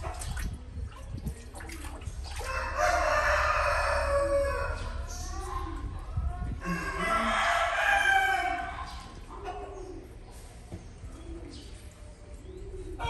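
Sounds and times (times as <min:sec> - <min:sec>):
rooster crowing: 0:02.4 - 0:04.8, 0:06.6 - 0:08.7.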